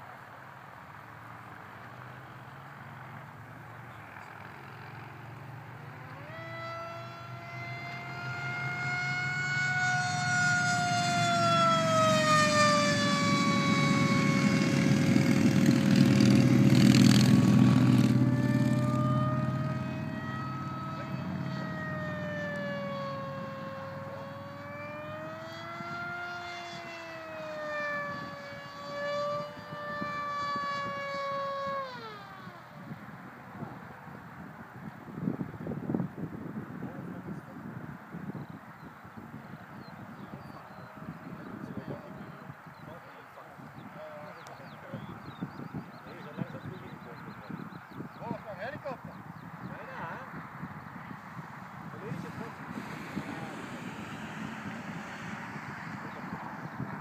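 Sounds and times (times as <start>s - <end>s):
model plane motor whining: 5.8s - 33.2s, 40.6s - 43.3s, 51.8s - 57.0s.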